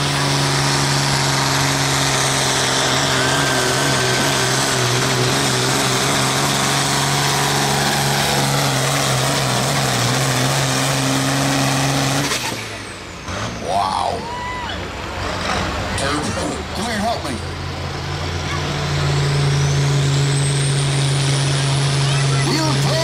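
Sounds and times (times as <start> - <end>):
tractor engine running under load: 0.0 - 13.2.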